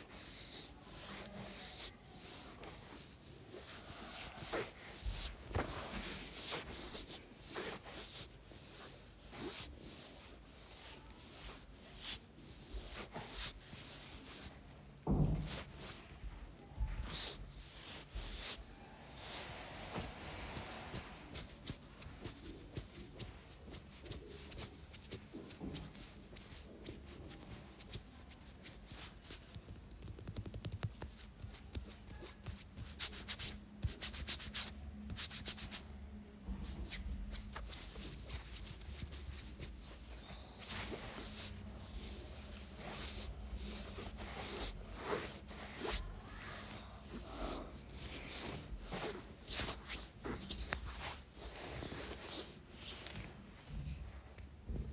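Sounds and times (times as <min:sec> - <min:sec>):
hands rubbing through hair: 0:36.8 - 0:53.3.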